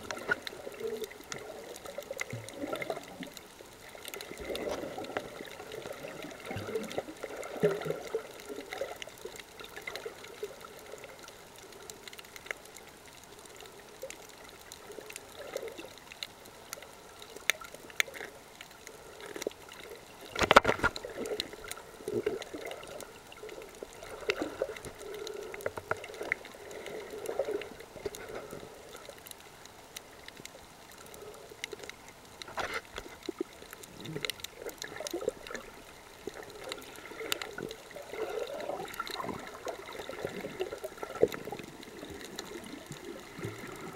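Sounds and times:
water gurgling underwater: 0:00.0 - 0:11.3, 0:19.7 - 0:29.3, 0:32.9 - 0:43.9
faint clicks: 0:00.0 - 0:43.9
water gush: 0:33.8 - 0:43.9.

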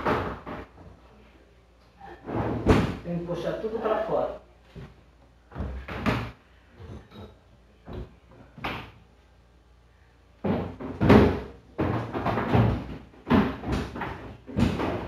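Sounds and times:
plastic bins knocking and clattering: 0:00.0 - 0:01.0, 0:02.2 - 0:03.1, 0:10.4 - 0:15.0.

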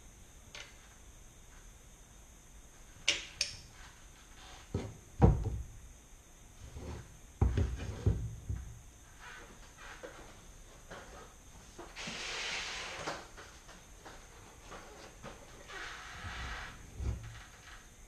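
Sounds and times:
dull knocks and clunks: 0:04.7 - 0:05.6.

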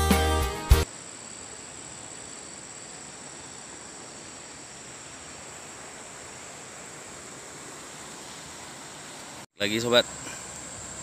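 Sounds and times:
insects droning: 0:00.8 - 0:11.0
river rushing over stones: 0:03.1 - 0:10.0.

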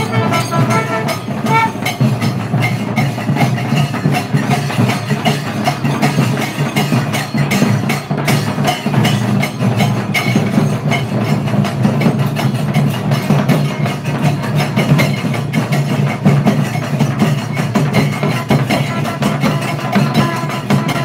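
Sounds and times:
drums and percussion playing: 0:00.0 - 0:21.0.

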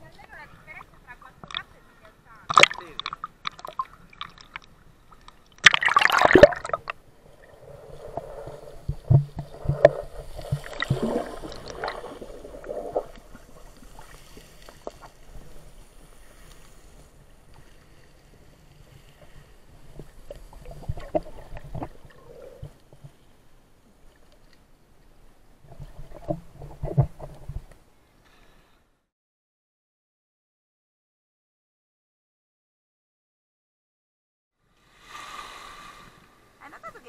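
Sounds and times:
water splashing on camera: 0:01.4 - 0:01.8, 0:02.5 - 0:15.8, 0:19.2 - 0:23.2
knocks underwater: 0:08.8 - 0:13.2, 0:25.7 - 0:27.7.

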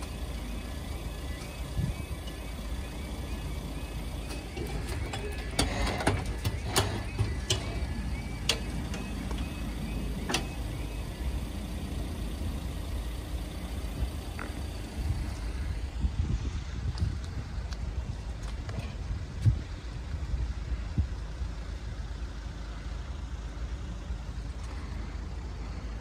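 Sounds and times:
level crossing alarm warbling: 0:00.0 - 0:15.6
wind rumble on microphone: 0:01.5 - 0:02.5, 0:13.7 - 0:22.1.

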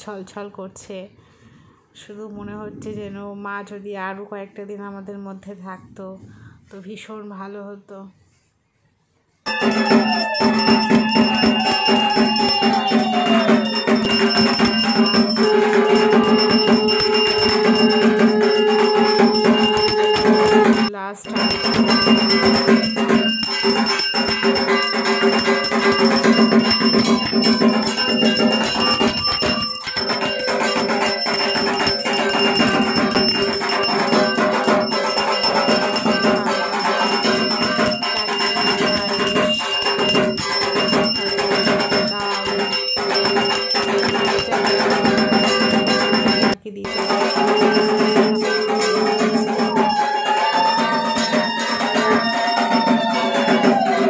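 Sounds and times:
worship music: 0:09.5 - 0:20.8
bells ringing: 0:09.5 - 0:54.0.

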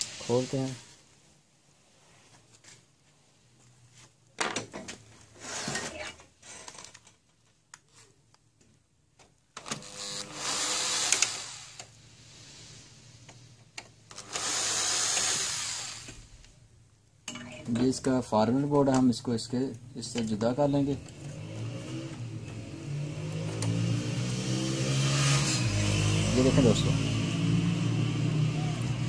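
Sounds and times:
electric screwdriver whirring: 0:09.6 - 0:11.9, 0:14.1 - 0:16.2.

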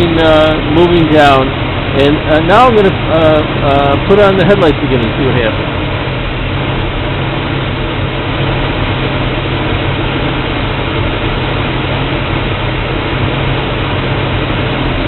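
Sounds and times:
car engine idling: 0:00.0 - 0:15.0.

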